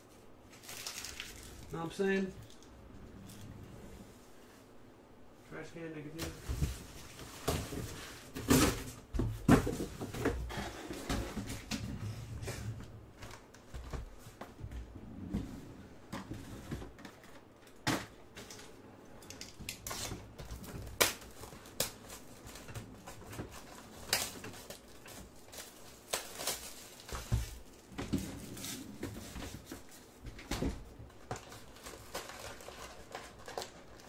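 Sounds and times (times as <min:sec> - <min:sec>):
shrink wrap crinkling and snapping: 0:00.4 - 0:02.7, 0:19.3 - 0:30.2, 0:31.0 - 0:34.0.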